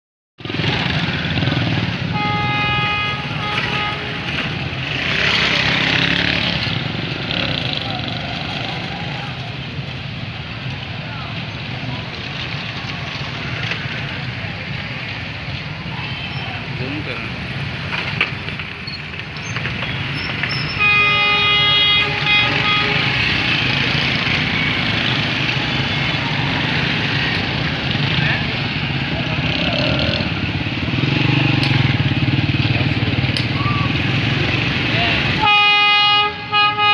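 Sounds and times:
motorcycle engines passing: 0:00.4 - 0:36.9
train rumbling: 0:00.6 - 0:36.9
motorcycle horn honk: 0:02.1 - 0:04.6, 0:20.7 - 0:23.5, 0:35.4 - 0:36.9.

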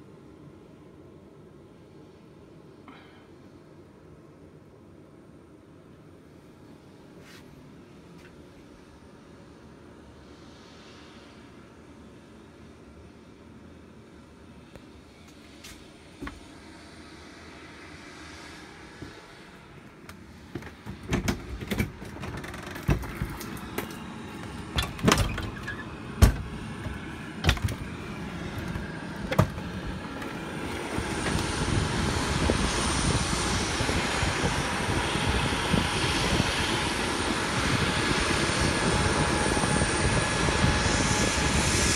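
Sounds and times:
aircraft roar: 0:08.8 - 0:41.9.

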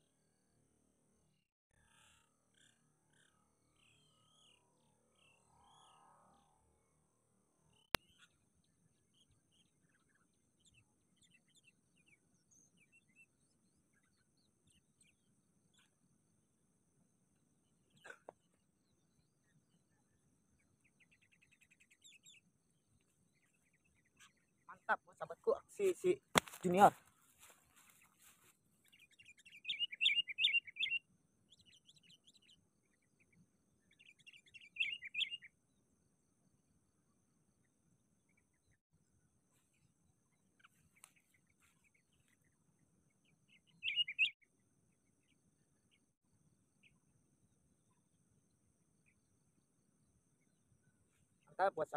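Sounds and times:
faint bird chirps: 0:01.7 - 0:06.8, 0:07.6 - 0:16.3, 0:17.4 - 0:35.9, 0:37.0 - 0:51.9
bulbul calling: 0:29.2 - 0:31.0, 0:34.2 - 0:35.5, 0:43.7 - 0:44.4.

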